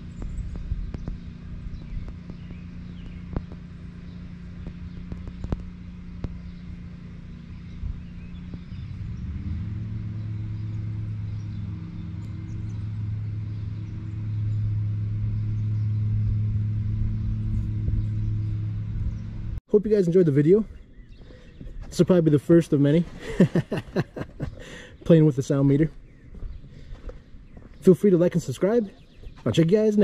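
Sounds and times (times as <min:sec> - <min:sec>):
distant lawn mower engine: 0:00.0 - 0:30.0.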